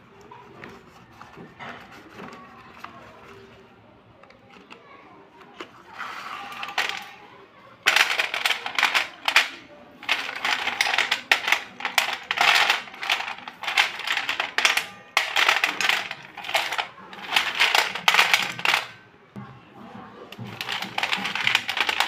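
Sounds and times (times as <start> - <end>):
pencils clattering on metal plate: 5.6 - 7.2, 7.8 - 19.0, 20.3 - 22.0.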